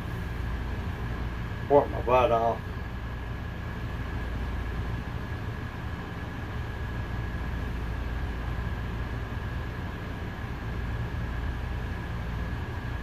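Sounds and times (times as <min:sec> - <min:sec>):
faint high whine: 0:00.0 - 0:13.0
low hum and rumble: 0:00.0 - 0:13.0.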